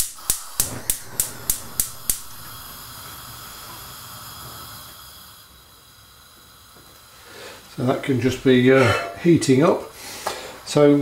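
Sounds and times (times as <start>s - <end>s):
gas igniter clicking: 0.0s - 4.9s
gas burner hissing: 0.0s - 11.0s.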